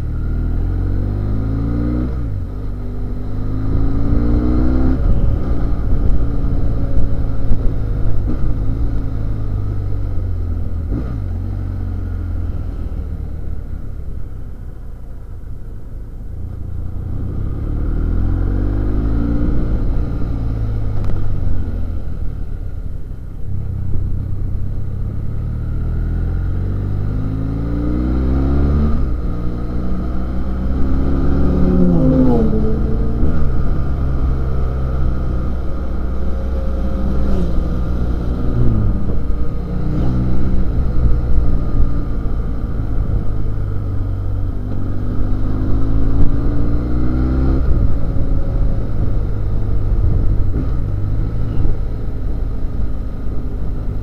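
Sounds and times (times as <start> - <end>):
road and wind noise: 0.0 - 54.0
motorcycle engine running: 28.9 - 46.8.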